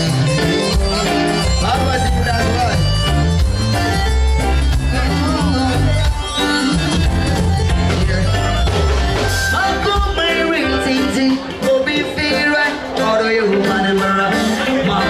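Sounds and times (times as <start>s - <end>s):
strong bass line: 0.0s - 11.2s
person singing: 9.4s - 15.0s.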